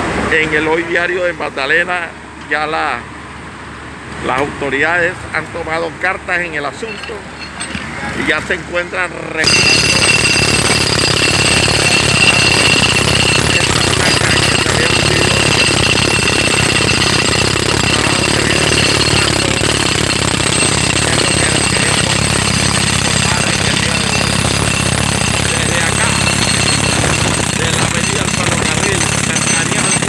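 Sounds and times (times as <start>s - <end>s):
high ringing tone: 6.6s - 8.2s, 9.4s - 30.0s
jackhammer pounding concrete: 9.4s - 30.0s.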